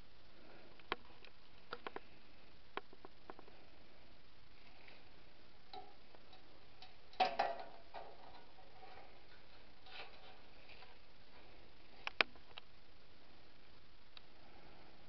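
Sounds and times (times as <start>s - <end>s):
clicks and knocks of metal model: 5.7s - 10.4s.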